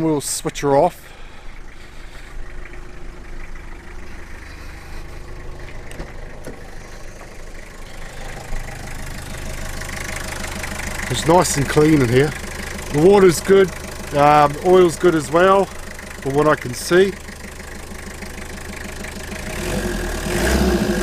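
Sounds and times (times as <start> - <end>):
diesel engine idling: 0.0 - 21.0.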